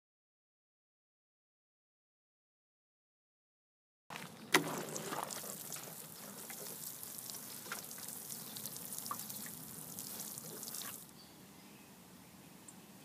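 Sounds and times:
water sprinkling onto soil: 4.1s - 11.1s.

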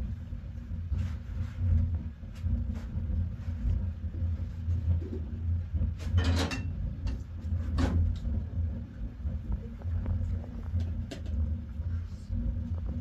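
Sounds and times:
steady low rumble: 0.0s - 13.0s
kitchenware clattering: 6.2s - 6.7s.

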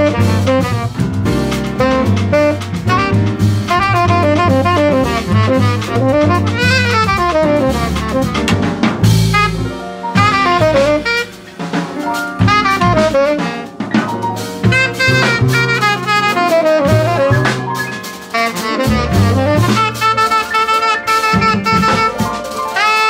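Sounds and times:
bass: 0.0s - 23.0s
drum kit: 0.0s - 23.0s
piano: 0.0s - 23.0s
saxophone quick runs: 1.8s - 8.6s, 10.2s - 11.4s, 12.4s - 14.0s, 14.6s - 23.0s.

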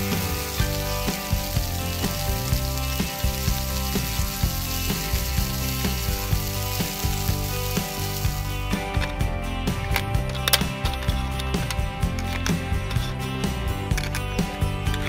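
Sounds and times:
frying sizzle: 0.0s - 9.2s
background music with beat: 0.0s - 15.0s.

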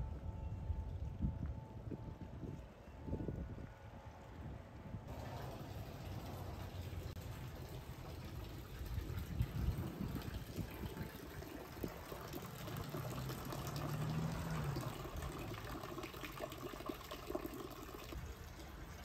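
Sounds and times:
fountain water splashing: 5.1s - 19.0s.

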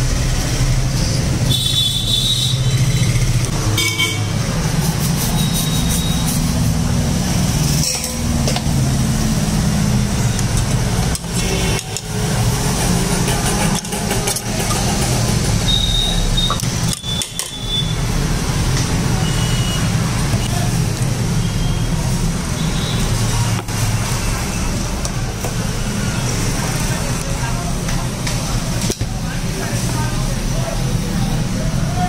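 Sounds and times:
road traffic rumble: 0.0s - 32.0s
faint background voices: 18.6s - 32.0s.

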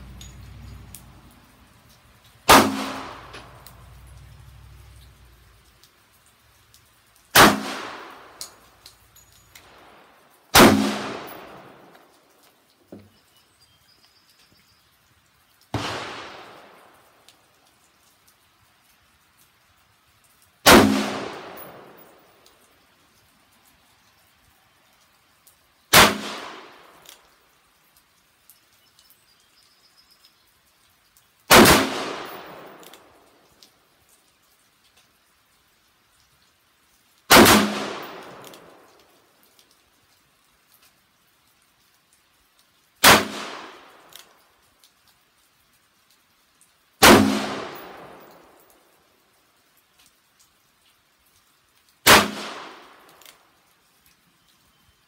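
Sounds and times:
handgun shots echoing: 2.5s - 3.6s, 10.6s - 11.8s.

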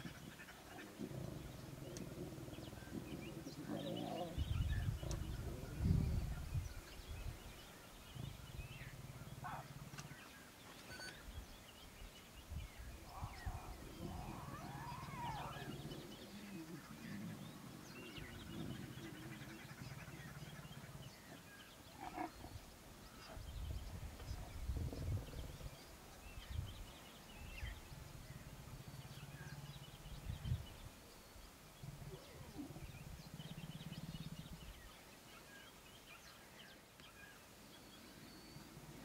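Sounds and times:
lion cubs growling: 0.1s - 5.8s, 13.0s - 22.6s, 31.8s - 34.8s
faint bird chirps: 2.6s - 12.0s
lioness snarling: 3.4s - 4.5s, 13.2s - 19.6s
high cub calls: 13.1s - 16.9s.

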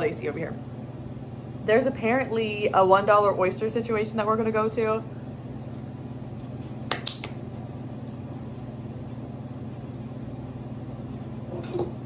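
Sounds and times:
finger snap: 6.8s - 7.4s.

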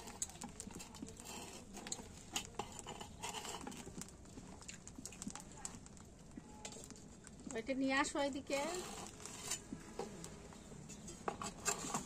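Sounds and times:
utensil scraping cookware: 0.0s - 4.1s, 8.4s - 12.0s.

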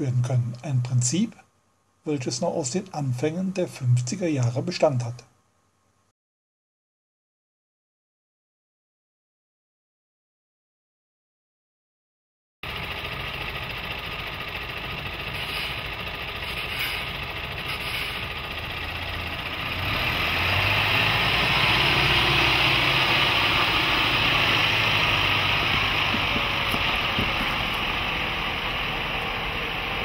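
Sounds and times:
diesel engine running under load: 12.6s - 30.0s.

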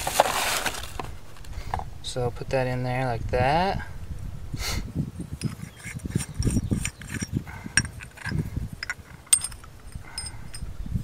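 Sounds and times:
pipe fittings clicking and clinking: 5.4s - 10.7s.

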